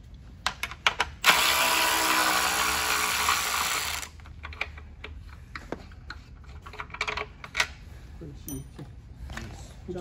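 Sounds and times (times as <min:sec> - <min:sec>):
electric ratchet running: 0:01.2 - 0:04.2.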